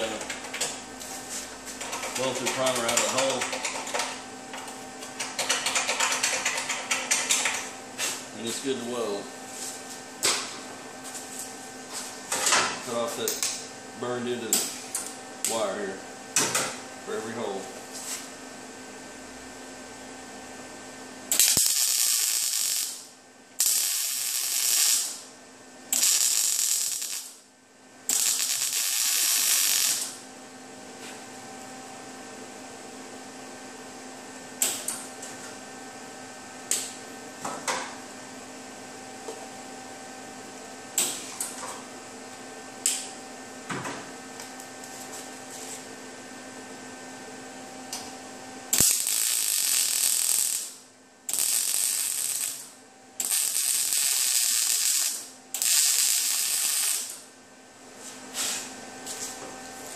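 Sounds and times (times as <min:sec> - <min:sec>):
welding hiss: 0:21.3 - 0:25.2, 0:25.9 - 0:27.4, 0:28.1 - 0:30.2, 0:48.7 - 0:57.2.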